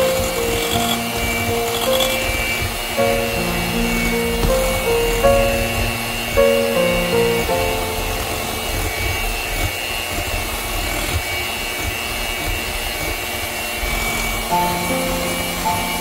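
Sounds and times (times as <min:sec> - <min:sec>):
electric hand mixer whipping cream: 0:00.0 - 0:16.0.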